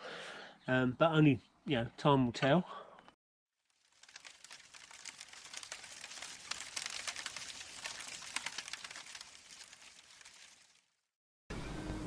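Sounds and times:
wood fire crackling: 3.6s - 11.1s.

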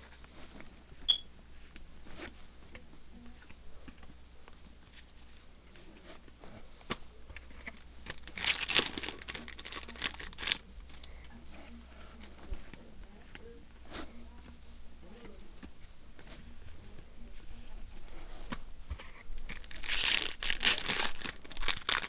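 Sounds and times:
foil wrapper crinkling: 7.6s - 10.6s, 19.5s - 22.0s.

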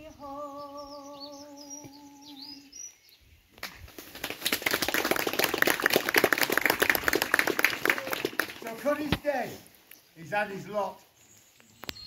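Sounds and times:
person singing: 0.0s - 2.8s
audience clapping: 4.1s - 9.0s.

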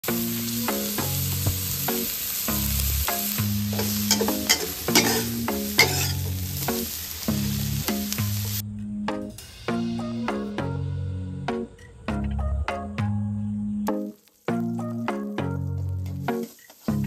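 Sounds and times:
food sizzling in a wok: 0.0s - 8.6s, 13.9s - 17.0s
metal spatula scraping wok: 3.7s - 6.8s
spatula clinking against wok: 3.8s - 6.3s.

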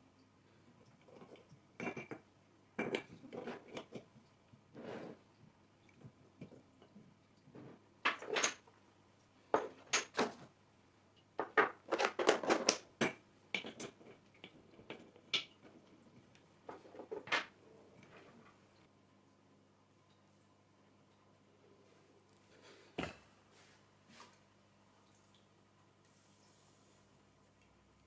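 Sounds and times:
faint low hum: 13.2s - 28.0s.

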